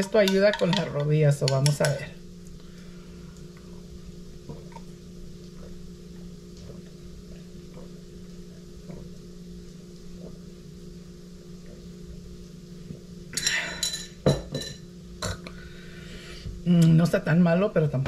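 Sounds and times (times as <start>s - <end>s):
glass knocking on hard surface: 14.2s - 14.8s.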